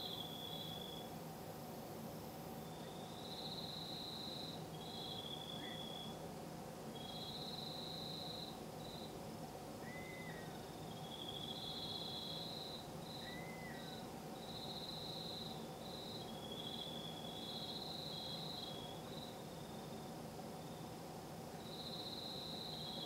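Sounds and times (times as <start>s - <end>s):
night insects trilling: 0.0s - 1.4s, 2.3s - 23.0s
steady low background hum: 0.0s - 23.0s.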